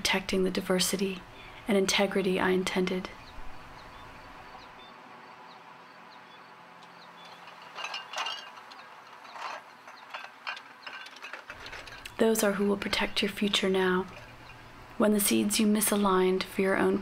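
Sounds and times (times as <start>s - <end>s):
rustling or scraping noises: 6.8s - 14.8s.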